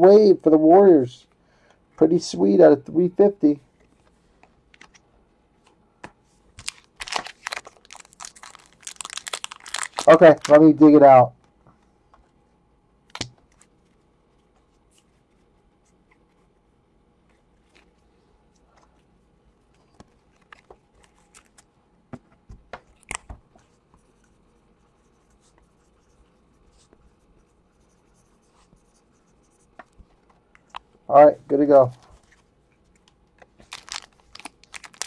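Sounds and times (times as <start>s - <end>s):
cards and pen rustling scratching: 19.7s - 21.7s, 22.8s - 30.2s.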